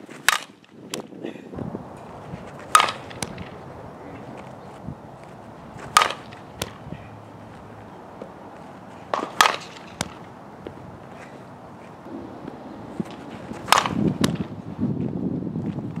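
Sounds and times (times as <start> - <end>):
bat cracking against ball: 0.2 - 1.1, 2.5 - 3.6, 5.8 - 6.9, 9.0 - 11.3, 12.9 - 14.6.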